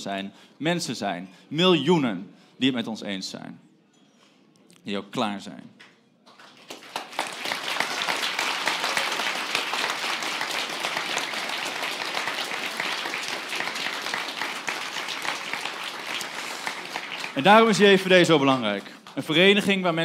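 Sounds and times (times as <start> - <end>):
crowd applauding: 6.3 - 20.0.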